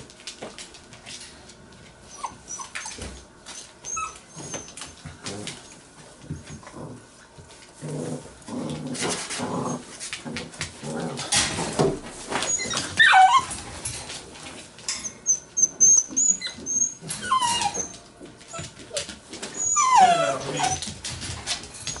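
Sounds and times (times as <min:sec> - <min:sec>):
puppies playing and scuffling: 0:00.0 - 0:22.0
puppy whimpers and squeals: 0:02.1 - 0:05.0, 0:12.4 - 0:13.6, 0:15.0 - 0:20.9
knocks and rustling: 0:10.1 - 0:15.0.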